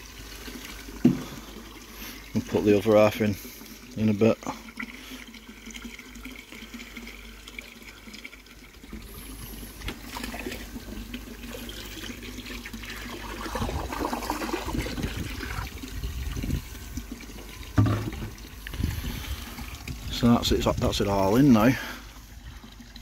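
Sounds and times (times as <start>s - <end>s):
water splashing into pond: 4.4s - 20.1s.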